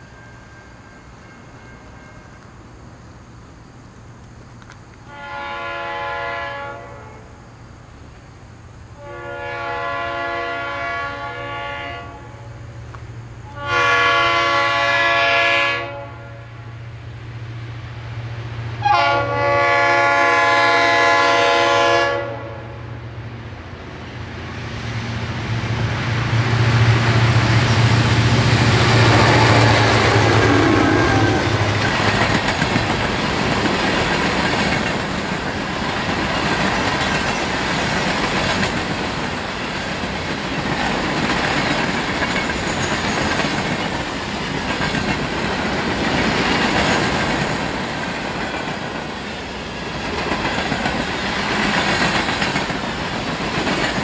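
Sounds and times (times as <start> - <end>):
locomotive horn blasts: 5.1 - 7.3, 9.0 - 12.6, 13.4 - 16.7, 18.8 - 22.9, 28.7 - 31.8
diesel engine drone: 25.3 - 33.0
train cars clacking on rails: 25.7 - 54.0.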